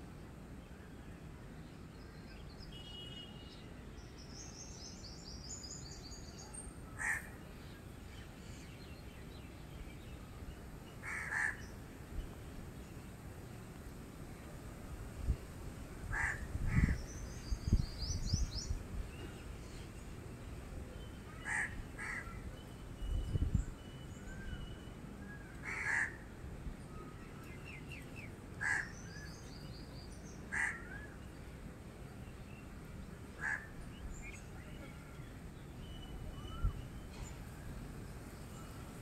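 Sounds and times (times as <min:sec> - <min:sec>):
crows cawing: 0:07.0 - 0:07.3, 0:11.0 - 0:11.6, 0:16.1 - 0:17.0, 0:21.4 - 0:22.3, 0:25.6 - 0:26.2, 0:28.6 - 0:29.0, 0:30.5 - 0:30.9, 0:33.4 - 0:33.7.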